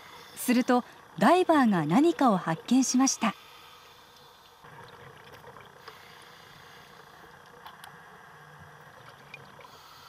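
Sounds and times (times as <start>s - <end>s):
low underwater hiss: 3.2s - 10.0s.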